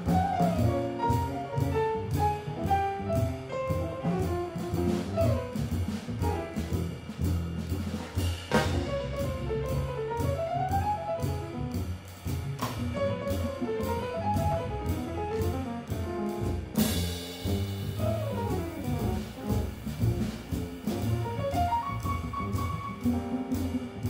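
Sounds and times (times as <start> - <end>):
jazz quartet playing: 0.0 - 24.0.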